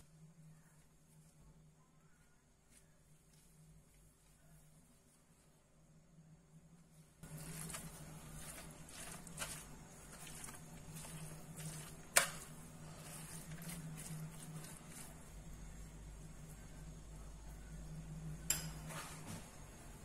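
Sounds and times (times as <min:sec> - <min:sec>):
spoon stirring stuffing in bowl: 0:07.2 - 0:16.6.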